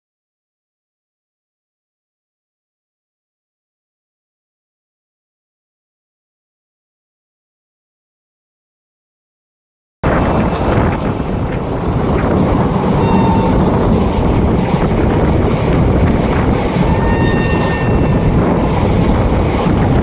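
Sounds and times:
train wheels on rails: 10.0s - 20.0s
wind buffeting microphone: 10.0s - 20.0s.

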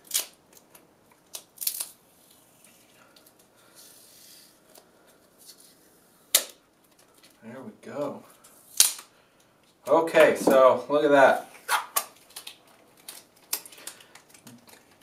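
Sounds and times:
plastic wrap snapping and crackling: 0.0s - 3.5s, 6.3s - 7.4s, 8.4s - 9.1s, 11.7s - 15.0s.

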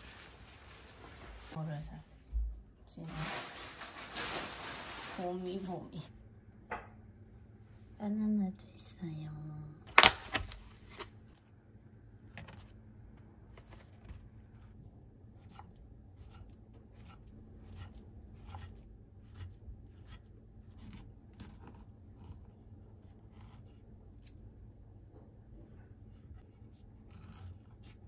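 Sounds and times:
plastic container rustling: 3.0s - 5.7s.

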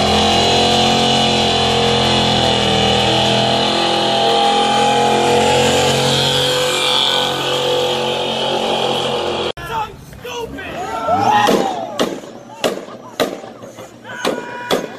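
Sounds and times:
truck engine at high revs: 0.0s - 9.6s.

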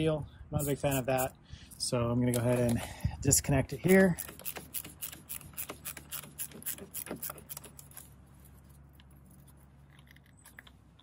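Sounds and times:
tool clicking rapidly: 4.0s - 7.9s.

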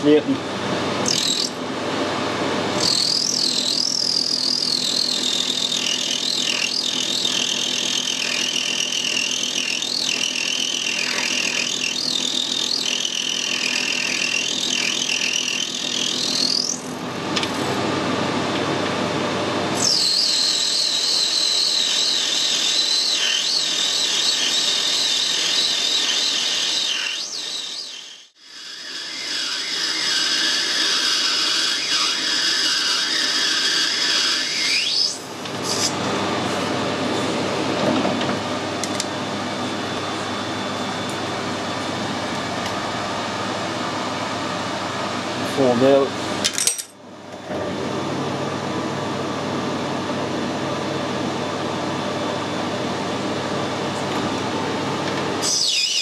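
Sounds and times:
high wavering cutting whine: 0.0s - 18.1s, 19.4s - 46.1s, 48.6s - 56.0s
metal lathe running: 2.6s - 17.2s, 19.8s - 43.4s.

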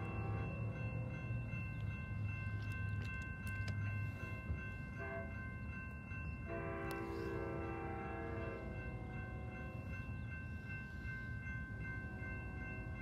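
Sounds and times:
train air horn: 0.0s - 0.6s, 5.0s - 5.3s, 6.5s - 9.7s
crossing warning bell ringing: 0.0s - 13.0s.

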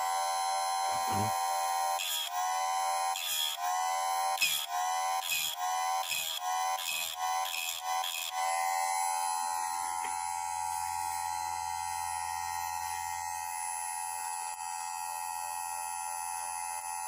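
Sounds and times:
sharpener motor whining: 0.0s - 13.4s
low mains hum: 0.8s - 1.4s.

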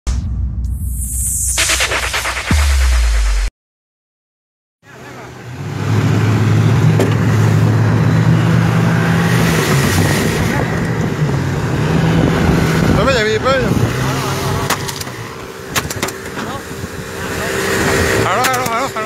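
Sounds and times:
rush of wind and water: 9.2s - 14.7s
motorboat engine drone: 15.2s - 19.0s.

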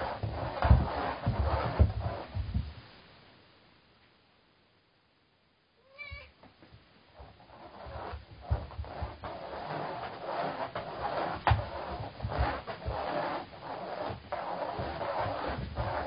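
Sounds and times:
toy rustling over carpet: 0.0s - 2.8s, 6.6s - 16.0s
cat paws scrabbling on carpet: 6.1s - 16.0s.

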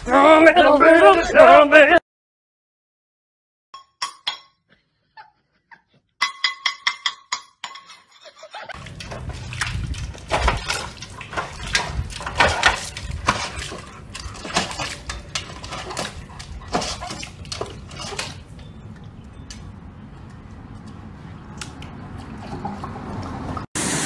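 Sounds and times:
metal bowl knocking: 6.2s - 8.0s
water sloshing in a bowl: 8.7s - 23.6s.

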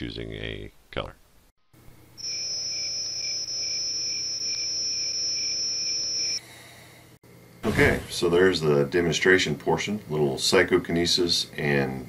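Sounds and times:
steady high-pitched tone: 2.2s - 6.4s.

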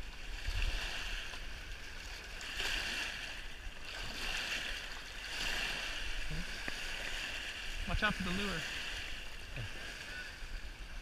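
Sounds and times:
water splashing and rushing: 0.0s - 11.0s
fish thrashing in water: 0.4s - 7.6s.

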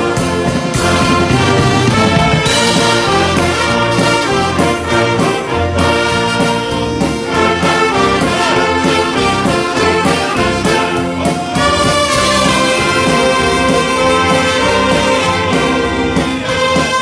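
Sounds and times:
orchestra playing: 0.0s - 17.0s.

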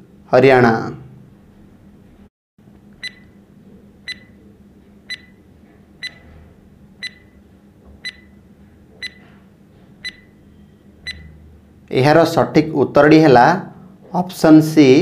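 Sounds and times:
faint steady hum: 0.0s - 15.0s
high-pitched timer beeps: 3.0s - 3.3s, 4.1s - 4.4s, 5.1s - 5.4s, 7.0s - 7.4s, 8.0s - 8.4s, 10.0s - 10.3s, 11.0s - 11.4s.

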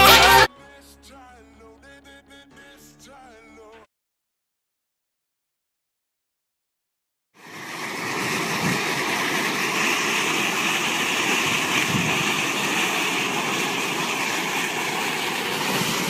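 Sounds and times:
water fountain splashing: 7.4s - 16.0s.

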